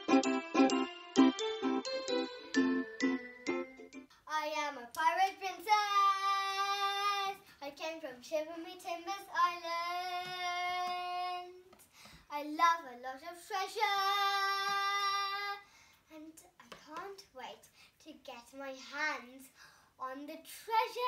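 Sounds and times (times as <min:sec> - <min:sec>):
girl singing: 0:04.2 - 0:21.0.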